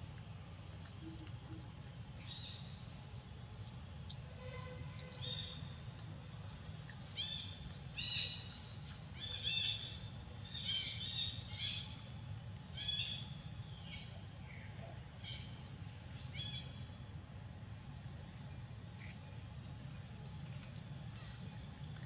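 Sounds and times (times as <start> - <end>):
low background rumble: 0.0 - 22.0
bird calling: 4.3 - 5.8, 7.1 - 12.0.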